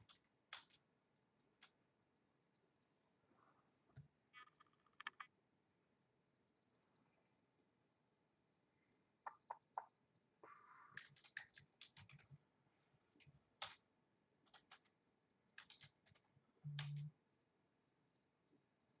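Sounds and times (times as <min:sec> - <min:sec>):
typing on computer keyboard: 0:00.0 - 0:00.8, 0:10.9 - 0:12.4, 0:13.2 - 0:13.8, 0:14.4 - 0:17.1.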